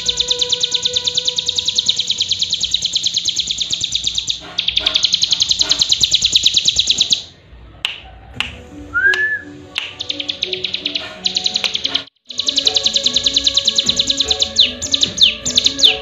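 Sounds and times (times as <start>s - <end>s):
small bird singing high chirps: 0.0s - 7.3s, 9.8s - 16.0s
sharp clicks: 9.8s - 16.0s.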